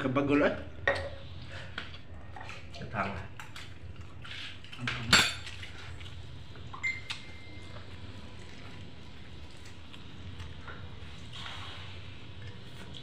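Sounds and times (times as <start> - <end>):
dishes clinking: 0.8 - 1.2, 4.8 - 5.6.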